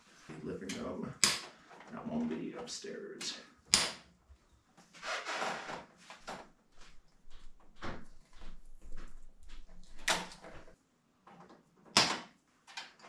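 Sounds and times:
hand tool clicking and snapping: 1.2 - 1.5, 3.7 - 4.0.

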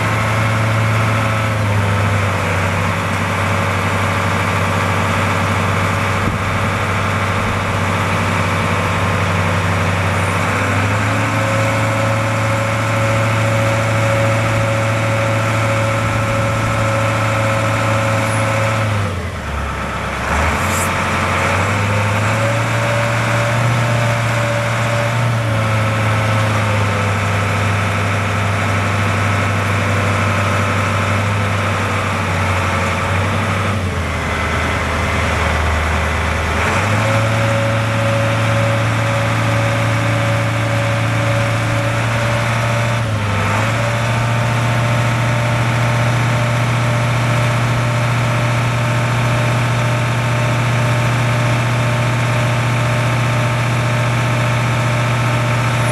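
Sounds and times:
diesel truck engine running: 0.0 - 55.9
thin hydraulic whine: 20.2 - 21.5.

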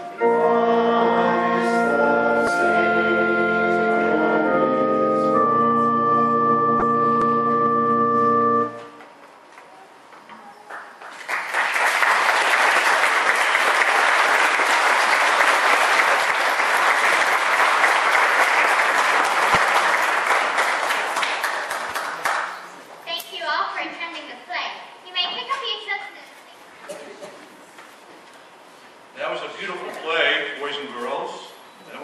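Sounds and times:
held musical chord: 0.0 - 9.0
audience applause: 10.7 - 22.7.

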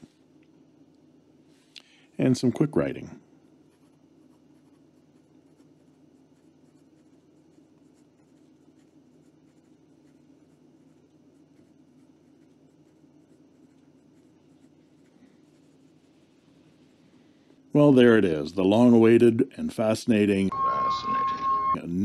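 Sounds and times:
pen scratching on paper: 3.7 - 16.4.

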